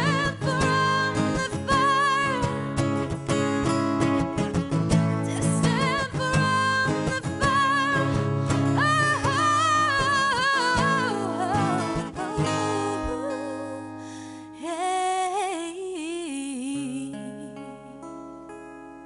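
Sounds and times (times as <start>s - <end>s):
woman singing with vibrato: 0.0s - 2.8s, 5.3s - 18.0s
acoustic guitars strumming: 0.0s - 15.1s.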